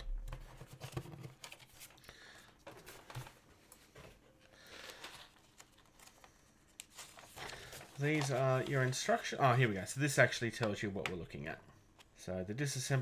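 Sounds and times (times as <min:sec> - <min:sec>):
paper sheet rustling and tapping: 0:00.0 - 0:02.0, 0:06.8 - 0:09.2.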